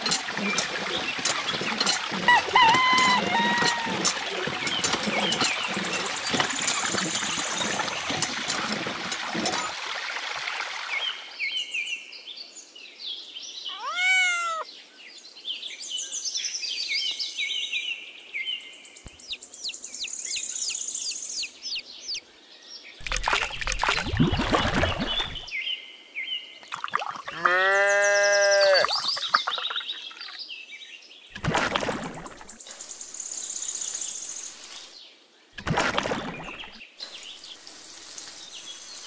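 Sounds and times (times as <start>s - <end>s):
birds chirping: 0.0s - 9.7s, 13.6s - 14.7s, 18.8s - 25.5s, 27.7s - 30.5s
water pouring and splashing: 0.0s - 11.4s, 23.0s - 25.5s, 26.6s - 27.6s, 28.8s - 30.4s, 31.3s - 35.0s, 35.6s - 39.0s
rising and falling bird call: 13.7s - 14.7s.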